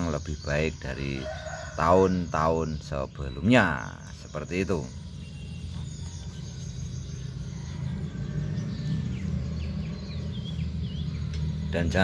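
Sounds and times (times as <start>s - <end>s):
faint bird chirps: 0.0s - 12.0s
low outdoor rumble: 2.9s - 12.0s.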